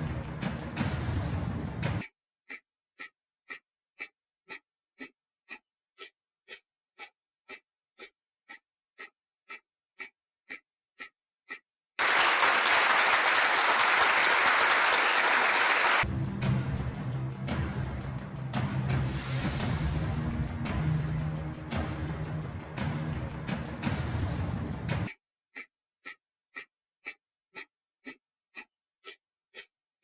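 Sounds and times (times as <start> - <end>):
timer ticking: 0.0 - 11.9, 16.0 - 30.0
applause: 12.0 - 16.1.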